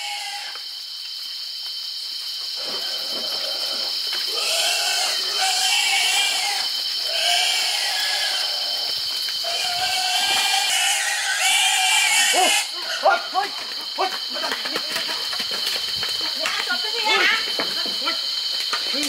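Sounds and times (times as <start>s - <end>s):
animal wavering cries: 3.0s - 13.1s.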